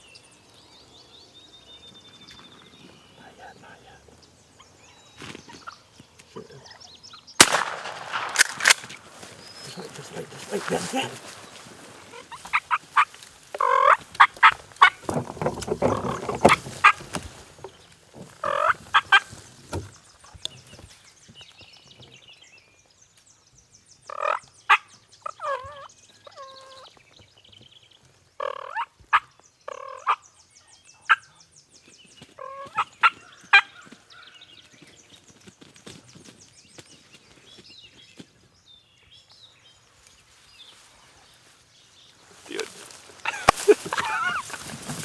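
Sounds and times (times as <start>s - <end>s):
turkeys gobbling: 7.4s - 15.1s, 15.8s - 17.2s, 18.3s - 19.4s, 24.1s - 26.8s, 32.4s - 34.0s, 43.2s - 44.7s.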